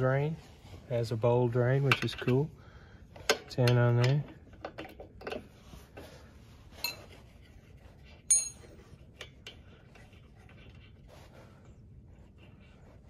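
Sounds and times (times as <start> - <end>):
wrench clinking on metal: 8.3 - 8.8.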